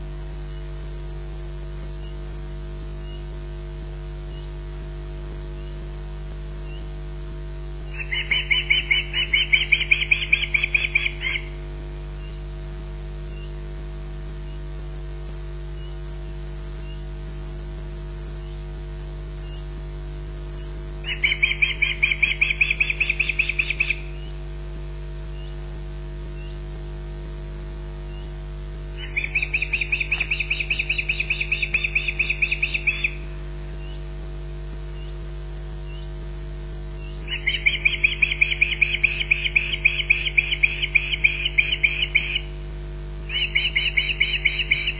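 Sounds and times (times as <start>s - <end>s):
electrical hum: 0.0s - 44.9s
rapid high-pitched bird chirps: 7.9s - 11.6s, 20.7s - 24.3s, 29.0s - 34.0s, 37.0s - 42.5s, 43.3s - 44.9s.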